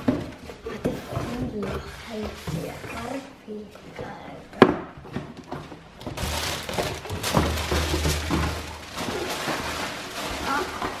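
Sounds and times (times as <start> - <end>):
tissue paper crinkling: 6.2 - 11.0.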